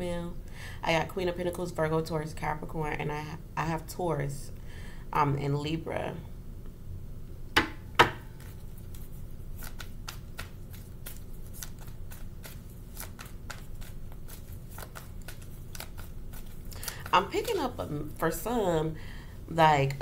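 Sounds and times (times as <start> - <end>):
cards shuffling: 8.3 - 18.1.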